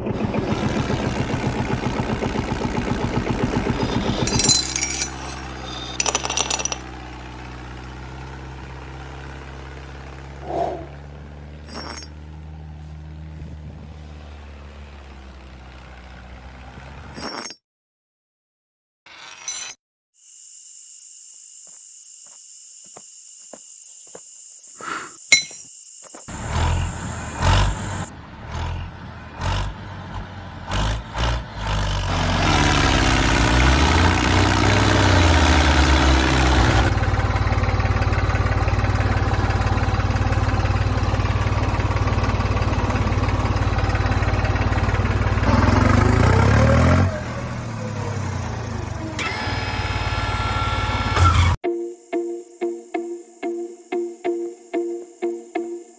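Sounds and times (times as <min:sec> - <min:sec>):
small model tractor motor running: 0:00.5 - 0:04.4, 0:48.4 - 0:51.6.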